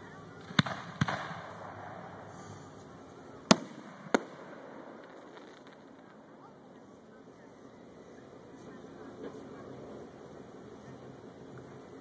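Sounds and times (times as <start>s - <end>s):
fireworks bangs: 0.0s - 7.4s.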